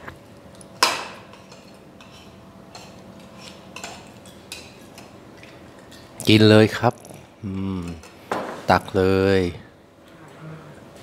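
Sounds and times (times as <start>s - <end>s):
dishes and cutlery tapping: 0.8s - 6.1s.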